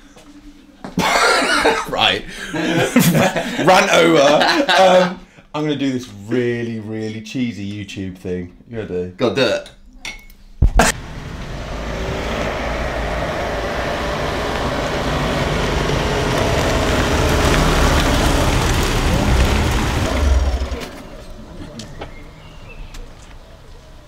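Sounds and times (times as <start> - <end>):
van approaching: 10.9 - 24.0.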